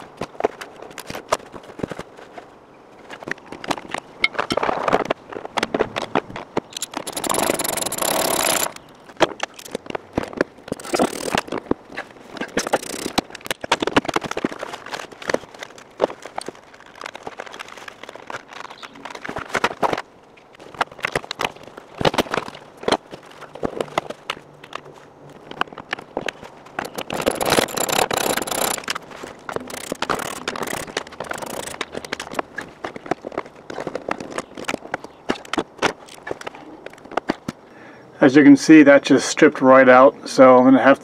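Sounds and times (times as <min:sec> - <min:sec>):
clicks and knocks: 0:25.6 - 0:32.5.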